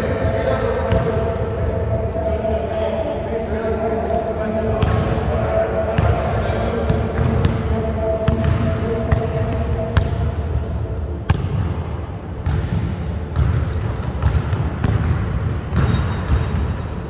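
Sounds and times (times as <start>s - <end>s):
sneaker squeaks: 11.3s - 17.0s.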